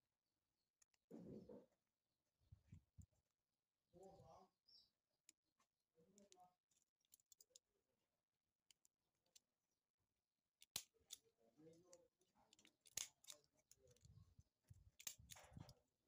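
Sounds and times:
faint clicks and handling: 0.6 - 1.1, 2.6 - 3.4, 5.2 - 7.8, 8.5 - 16.0.

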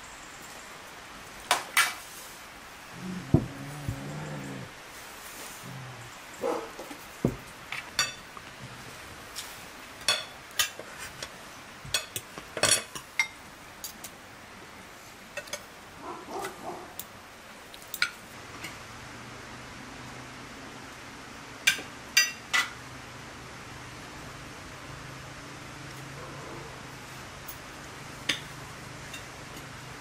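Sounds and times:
faint steady hum: 0.0 - 30.0
cutlery and dishes clinking: 11.9 - 13.4.

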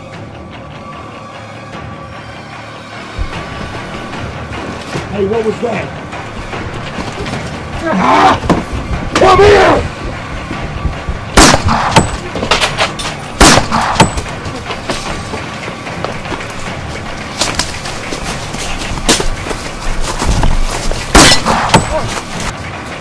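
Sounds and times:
pistol shots: 11.4 - 12.2, 13.4 - 14.3, 21.1 - 22.0
cracks and rustling in undergrowth: 14.6 - 22.6.

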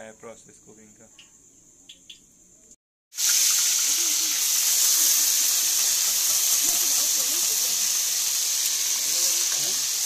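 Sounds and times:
paste sizzling in hot oil: 3.1 - 10.0.

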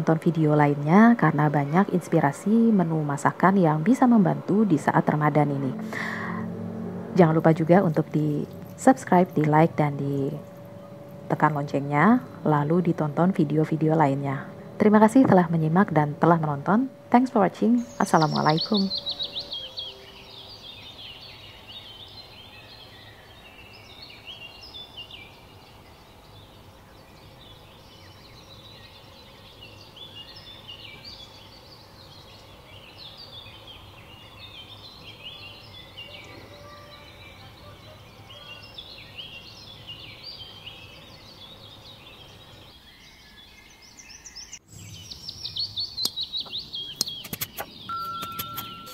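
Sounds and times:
small birds chirping: 7.2 - 48.9
sharp clicks and chirps: 45.6 - 48.9.

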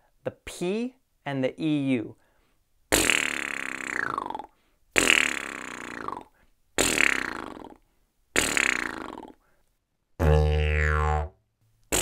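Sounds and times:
lips buzzing: 2.9 - 7.8, 8.4 - 9.4, 10.2 - 11.3.

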